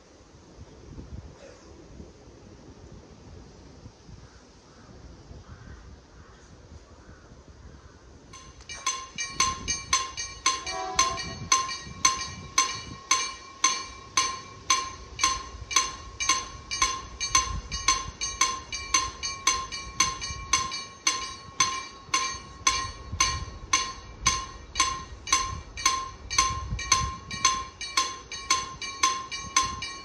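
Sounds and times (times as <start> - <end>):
crossing warning bell dinging: 8.4 - 30.0.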